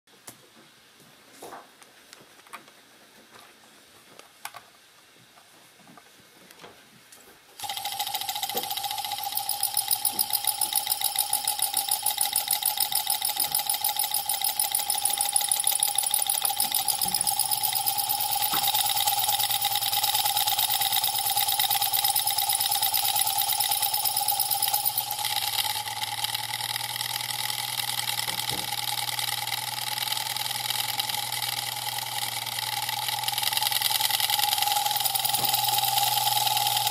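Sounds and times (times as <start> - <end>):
electric motor buzzing and whining: 7.6 - 36.9.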